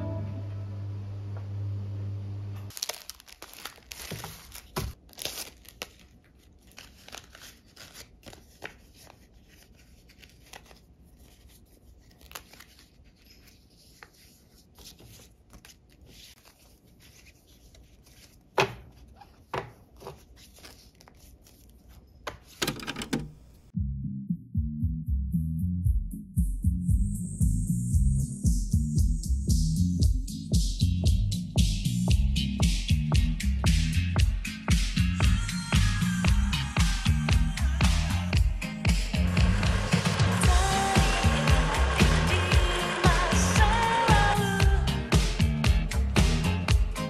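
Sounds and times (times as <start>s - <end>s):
music: 0.0s - 1.4s, 23.8s - 47.0s
paper rustling and crinkling: 2.7s - 23.6s.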